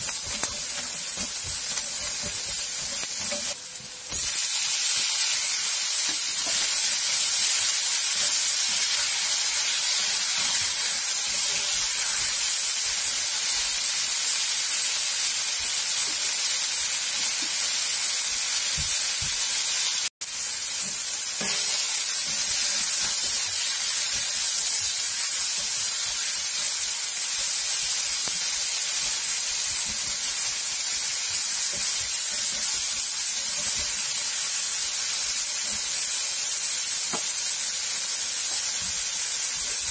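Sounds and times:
spatula stirring: 0.0 - 10.8
vegetables sizzling in oil: 0.0 - 39.9.

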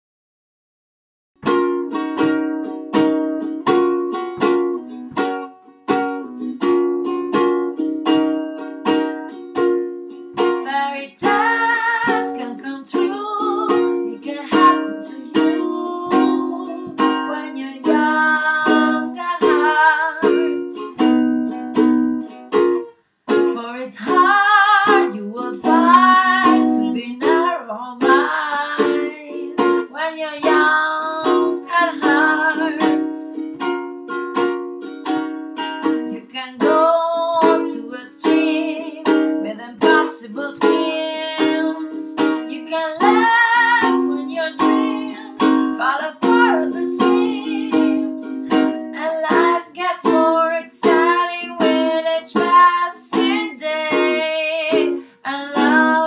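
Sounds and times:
ukulele strumming chords: 1.4 - 56.0
woman singing: 10.4 - 21.0, 23.4 - 33.4, 36.1 - 56.0.

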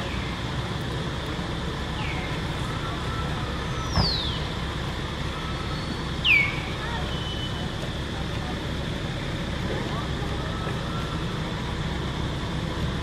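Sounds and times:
outdoor rumble and hiss: 0.0 - 13.0
falling whistled calls: 5.3 - 7.6.

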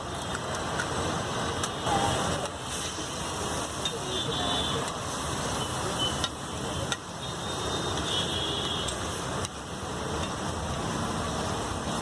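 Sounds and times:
eggs sizzling on a griddle: 0.1 - 12.0
spatula clacking on griddle: 3.6 - 4.0, 6.1 - 7.2, 7.9 - 10.5.

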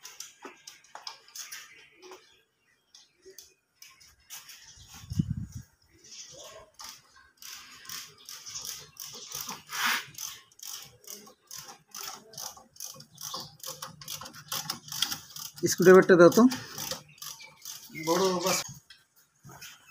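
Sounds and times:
hand ratchet clicking: 6.8 - 18.4.

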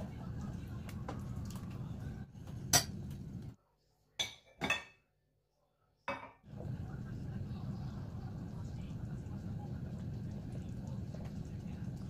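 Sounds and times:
dishes and utensils clinking: 2.5 - 3.2
low steady hum: 6.5 - 12.0.

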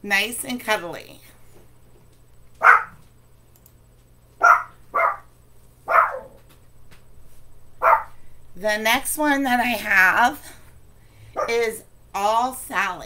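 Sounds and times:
dog barking: 2.6 - 3.0, 4.4 - 5.3, 5.9 - 6.4, 7.8 - 8.2.

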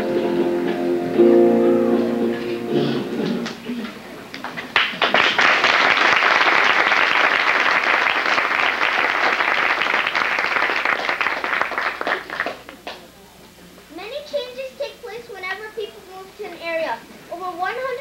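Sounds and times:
audience applauding: 3.4 - 13.1.

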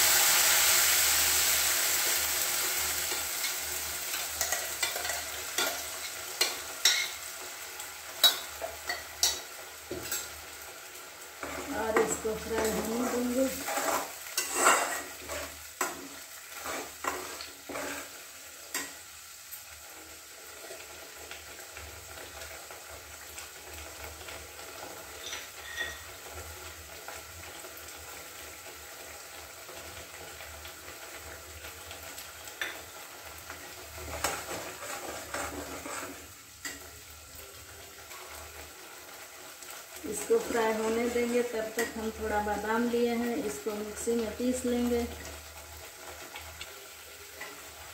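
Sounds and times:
paste sizzling in oil: 0.0 - 47.9
metal spatula scraping pan: 4.4 - 7.3, 8.2 - 10.4, 11.4 - 18.9, 25.2 - 26.1, 34.0 - 36.8.

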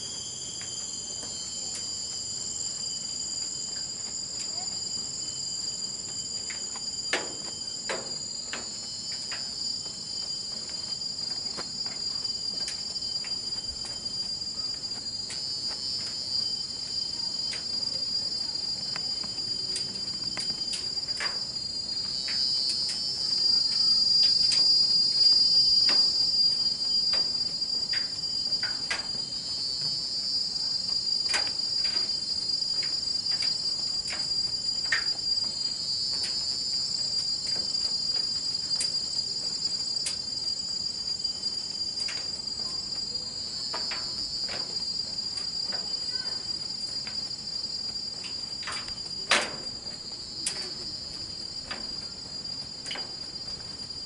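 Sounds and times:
insect chorus buzzing: 0.0 - 54.0.

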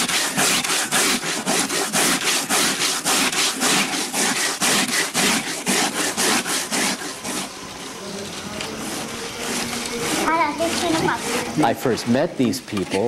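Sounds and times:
hand grating roots on a board: 0.0 - 7.5, 8.6 - 13.0.

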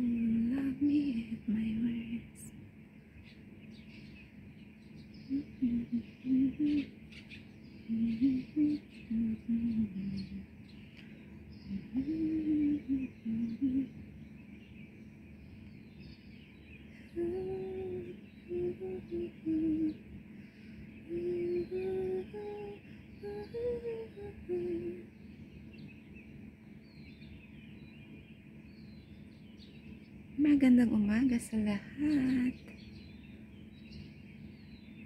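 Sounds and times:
person humming: 0.0 - 2.4, 5.3 - 6.9, 7.8 - 10.5, 11.6 - 14.0, 17.0 - 20.0, 21.0 - 25.0, 31.9 - 32.7
birds chirping faintly: 0.0 - 35.0.

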